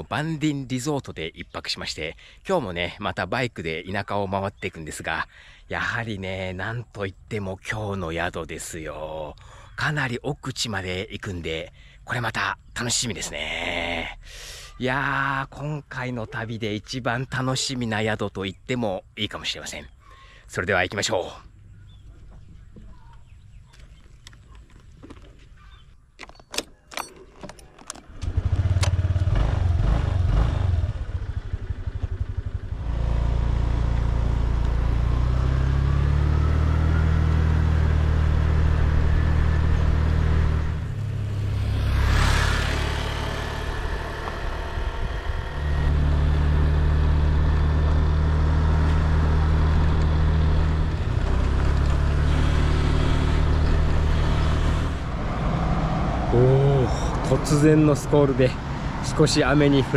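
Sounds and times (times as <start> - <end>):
motorbike engine running: 28.1 - 41.2, 42.3 - 55.1.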